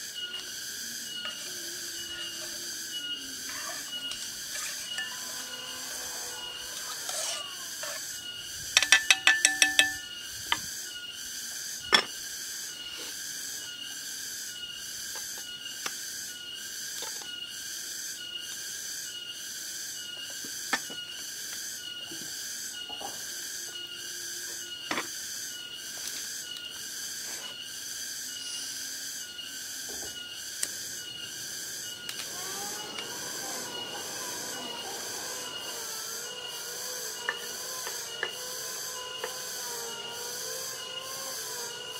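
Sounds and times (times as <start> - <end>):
insects chorus pulsing: 0.0 - 41.9
pot handle and lid rattling: 8.8 - 10.0.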